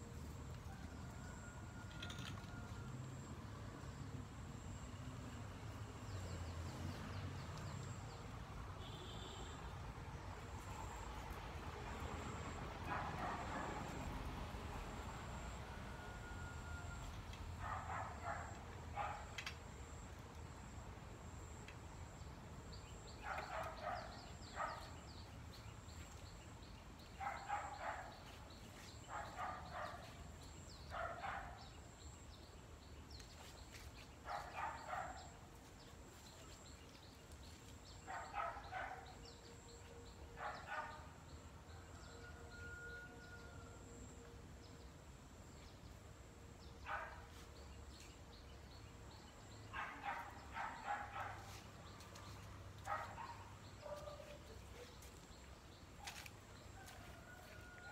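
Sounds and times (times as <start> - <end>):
dog barking: 12.9 - 14.0, 17.6 - 19.4, 23.2 - 25.0, 27.2 - 28.3, 29.1 - 30.2, 30.9 - 31.7, 34.3 - 35.4, 38.0 - 39.2, 40.4 - 41.1, 46.8 - 47.3, 49.7 - 55.0.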